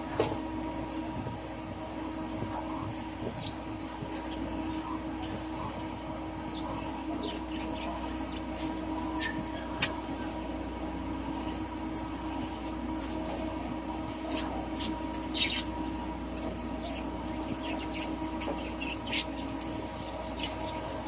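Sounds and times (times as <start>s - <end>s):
steady mechanical hum: 0.0s - 21.0s
small birds chirping: 3.2s - 9.8s, 15.2s - 15.9s, 16.8s - 21.0s.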